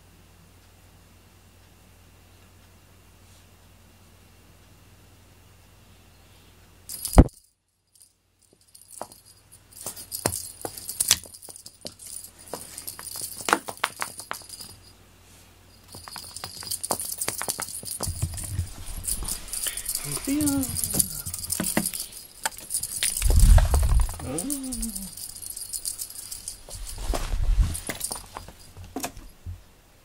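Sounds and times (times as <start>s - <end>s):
small bell jingling: 6.9s - 15.0s, 15.7s - 29.4s.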